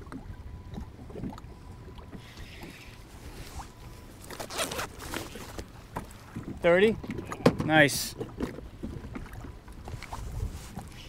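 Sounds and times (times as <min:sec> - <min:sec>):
water slapping kayak hull: 0:00.0 - 0:11.0
scratchy rustles: 0:03.3 - 0:05.7
wind on microphone: 0:09.8 - 0:11.0.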